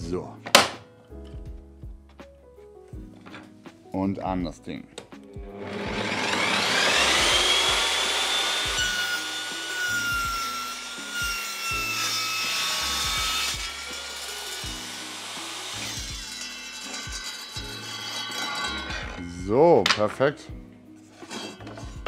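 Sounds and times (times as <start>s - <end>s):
table saw motor whine: 5.5s - 19.2s
saw blade cutting wood: 5.5s - 19.4s, 21.1s - 22.0s.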